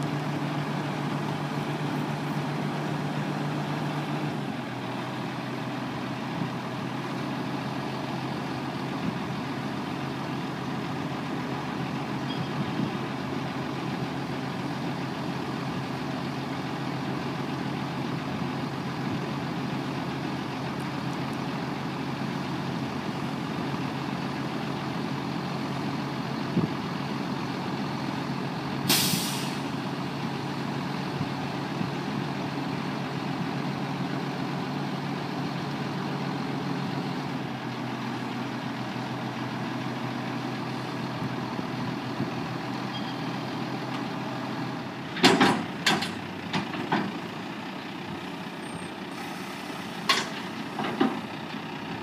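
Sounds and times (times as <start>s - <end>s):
diesel truck engine idling: 0.0s - 52.0s
hiss of released air: 28.9s - 29.7s, 49.1s - 50.1s.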